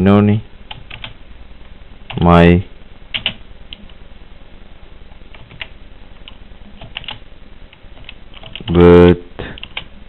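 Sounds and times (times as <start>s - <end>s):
keyboard keys clicking: 5.3s - 7.2s, 8.0s - 8.7s, 9.6s - 9.9s.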